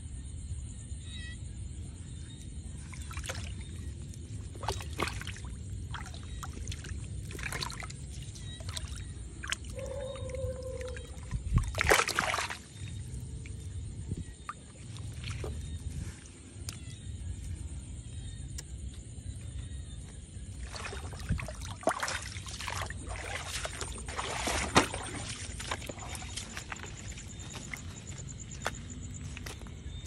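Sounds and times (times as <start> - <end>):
water splashing and sloshing: 2.0 - 30.0
steady low rumble: 12.7 - 30.0.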